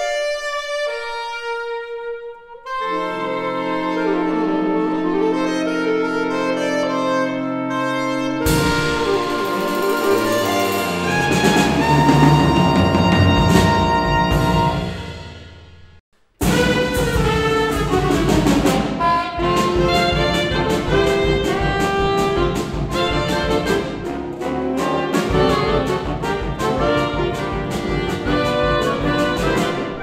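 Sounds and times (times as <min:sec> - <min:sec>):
saxophone chords: 0:00.0 - 0:15.6, 0:16.4 - 0:30.0
drums striking: 0:08.5 - 0:30.0.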